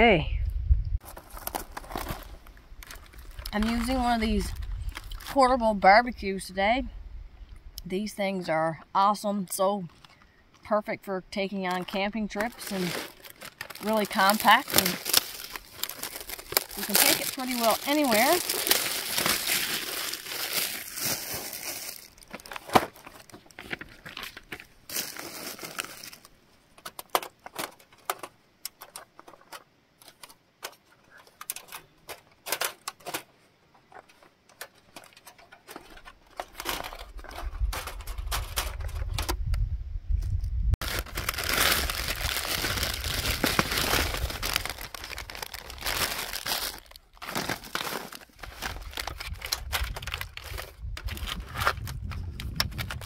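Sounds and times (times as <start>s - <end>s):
packaging crinkling and rustling: 1.0s - 5.5s, 11.7s - 33.3s, 33.9s - 39.3s, 40.8s - 53.0s.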